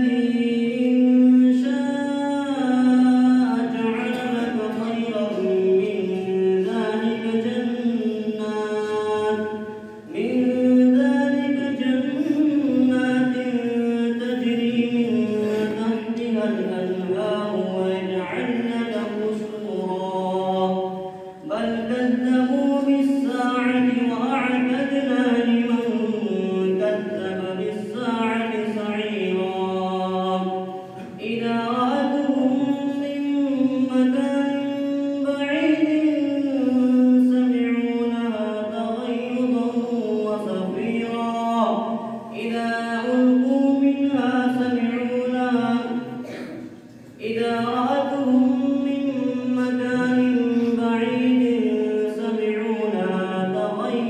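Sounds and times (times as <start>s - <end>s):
person reciting melodically: 0.0s - 54.0s.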